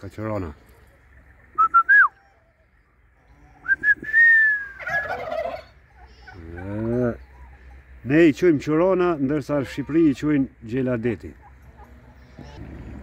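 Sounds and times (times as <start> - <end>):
turkey gobbling: 0.7 - 8.0
turkeys whistling: 0.7 - 8.0.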